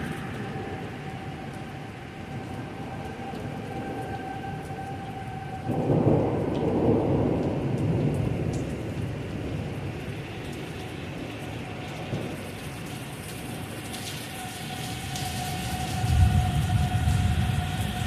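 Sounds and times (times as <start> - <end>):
heavy rain: 0.0 - 18.0
thunder rumbling: 2.4 - 12.6, 14.4 - 18.0.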